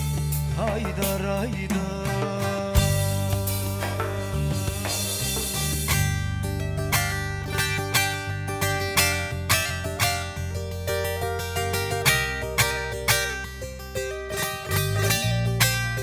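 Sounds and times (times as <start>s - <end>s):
band accompaniment: 0.0s - 8.6s
plucked long-necked lute: 0.0s - 16.0s
sustained low bass notes: 0.0s - 16.0s.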